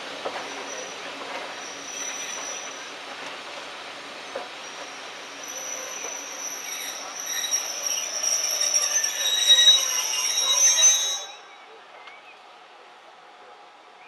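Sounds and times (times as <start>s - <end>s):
train wheels squealing on rails: 0.2s - 3.3s, 4.2s - 12.3s.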